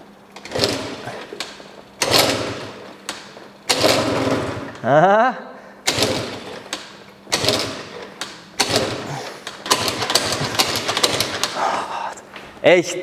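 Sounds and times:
scooter engine kick-start attempts: 0.4 - 4.9, 5.8 - 11.6.

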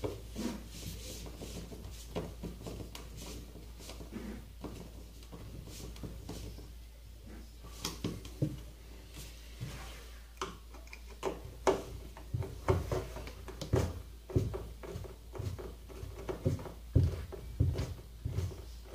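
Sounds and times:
clicks and knocks on wooden panels: 10.4 - 18.5.

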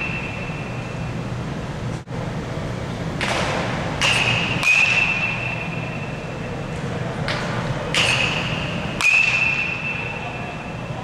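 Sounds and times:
indoor hall rumble: 0.0 - 11.0
metal bat hitting ball: 3.2 - 5.6, 7.3 - 10.0.

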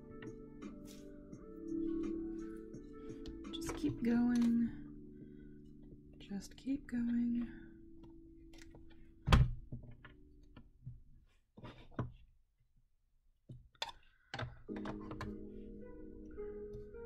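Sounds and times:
soft instrumental music: 0.0 - 10.6, 14.7 - 17.0.

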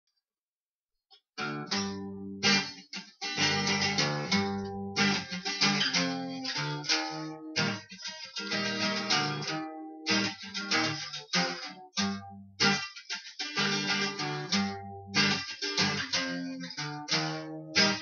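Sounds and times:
acoustic guitar strumming: 1.4 - 18.0.

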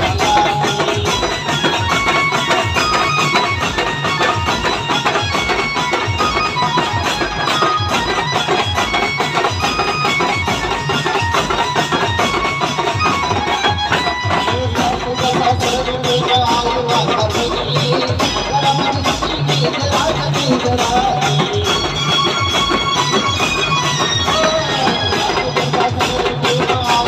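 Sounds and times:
drum beat: 0.0 - 27.0.

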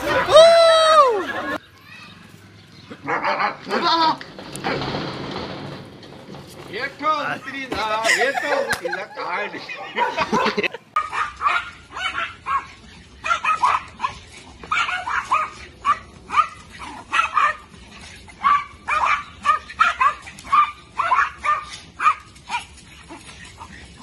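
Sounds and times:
small dogs yapping: 2.9 - 4.8, 9.7 - 24.0.

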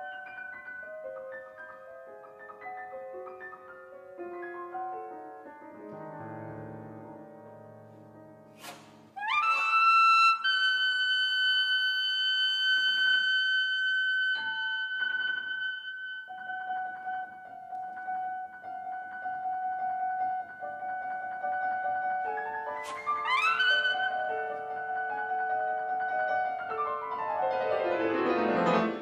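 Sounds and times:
piano chords: 0.0 - 29.0
saxophone playing: 9.2 - 17.9.

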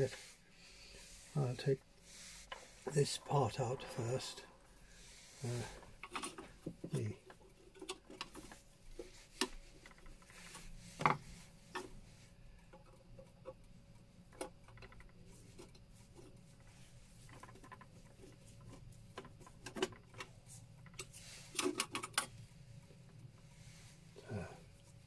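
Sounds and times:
hands clicking and tapping clock parts: 5.7 - 23.4.

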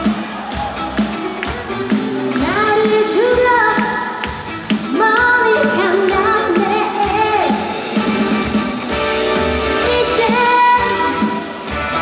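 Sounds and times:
amplified backing music: 0.0 - 12.0
woman singing into microphone: 2.4 - 4.3, 4.9 - 7.8, 9.7 - 11.4.

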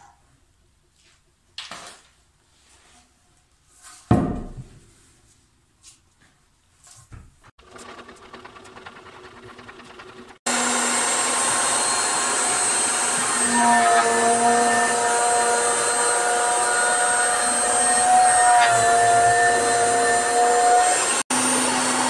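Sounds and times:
thickness planer cutting wood: 7.6 - 22.0.

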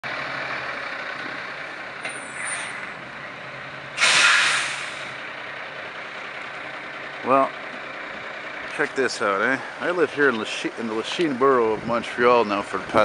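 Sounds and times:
engine and street noise: 0.0 - 13.0
high brake squeal: 2.0 - 2.9, 4.0 - 5.1
air brake hiss: 4.0 - 5.2.

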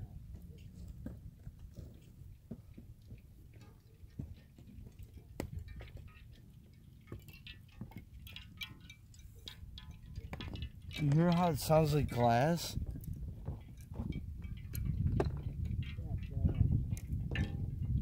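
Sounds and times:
ice shards clinking: 5.6 - 12.8.

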